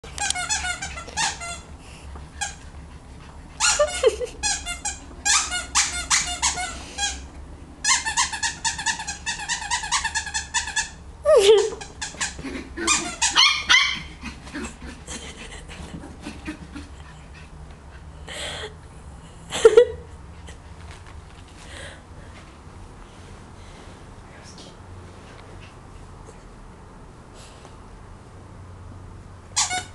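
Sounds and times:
squeaky toy squeaking: 0.2s - 1.7s, 2.4s - 2.6s, 3.6s - 11.0s, 11.6s - 14.1s, 29.6s - 29.9s
puppy yipping: 12.9s - 14.2s.

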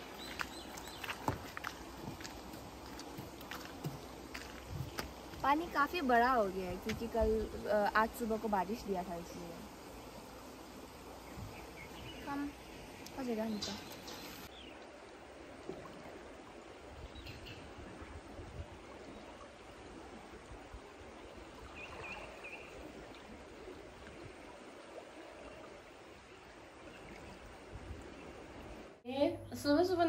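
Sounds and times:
river rushing: 0.0s - 9.4s.

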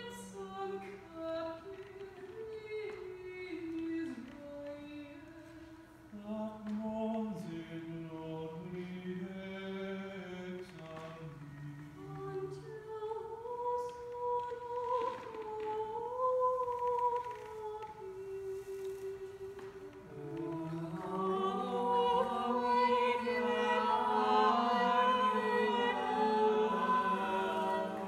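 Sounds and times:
choir singing a cappella: 18.3s - 28.0s.

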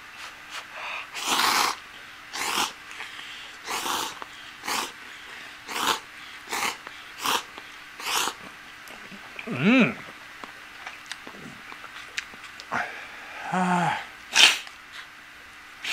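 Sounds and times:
slurping noodles: 1.1s - 5.0s, 5.7s - 8.4s.

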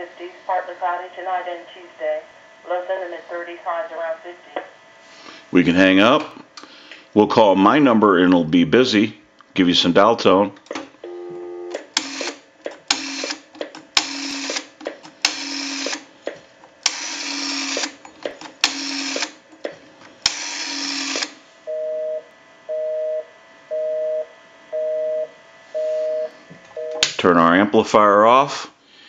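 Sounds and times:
busy signal beeping: 11.1s - 11.7s, 21.7s - 27.0s
rotary dial whirring and clicking: 11.7s - 21.4s.

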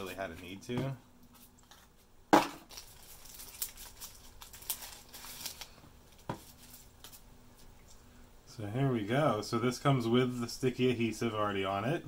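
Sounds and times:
wrapping crinkling and rustling: 1.3s - 8.0s.

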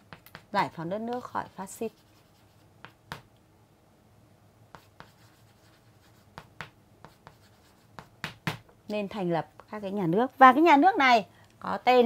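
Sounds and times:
chalk tapping and scratching: 0.0s - 3.3s, 4.7s - 8.6s.

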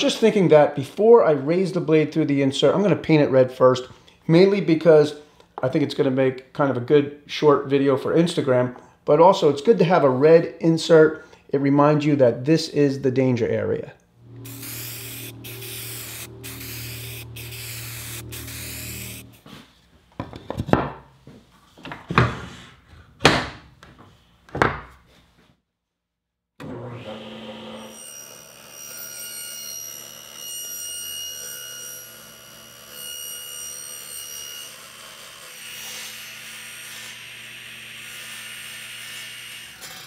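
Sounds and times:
table saw motor humming: 14.2s - 19.4s
saw blade cutting plywood: 14.2s - 19.5s, 27.2s - 40.0s.

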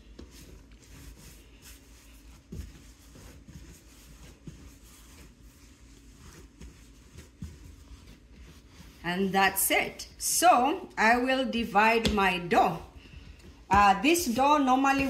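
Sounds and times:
soft pats on dough: 0.0s - 9.1s
hands kneading dough: 0.0s - 15.0s.

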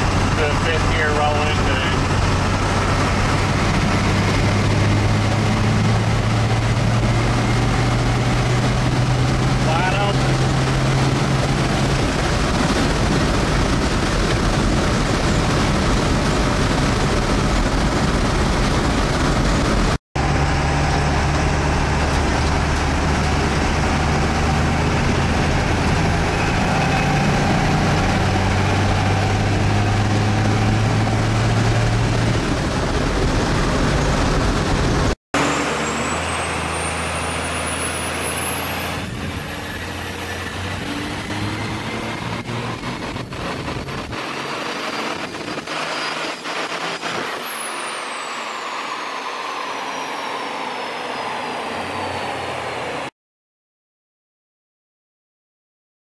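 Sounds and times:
diesel engine drone: 0.0s - 53.1s
road and wind noise: 0.0s - 53.1s
thin whistle rising in pitch: 47.1s - 52.8s.

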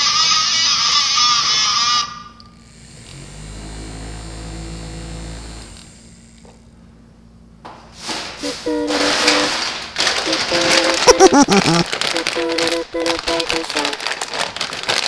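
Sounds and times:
small toy motor humming: 2.7s - 6.5s.

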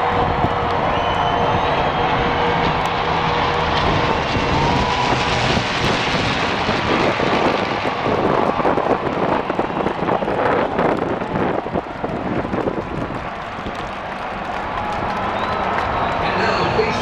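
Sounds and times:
propeller planes droning overhead: 0.0s - 17.0s.

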